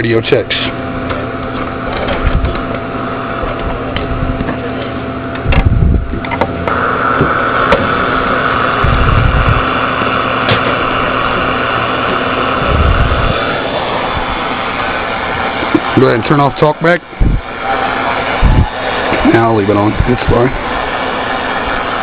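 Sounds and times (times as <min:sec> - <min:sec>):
steady hiss: 0:06.6 - 0:22.0.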